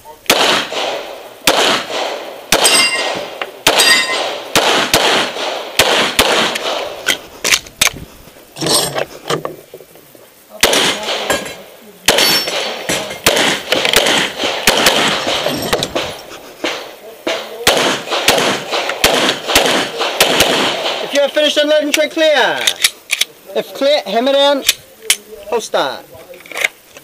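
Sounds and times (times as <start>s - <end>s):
pistol shots: 0.3s - 7.0s, 10.6s - 21.3s
metallic ringing: 2.6s - 4.3s.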